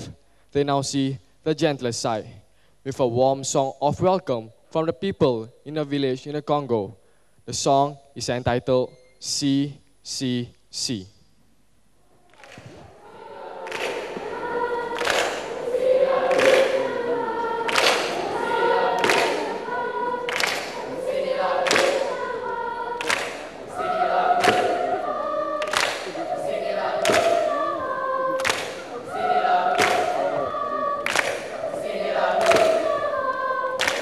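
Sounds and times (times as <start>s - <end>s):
choir singing held notes: 12.4s - 34.0s.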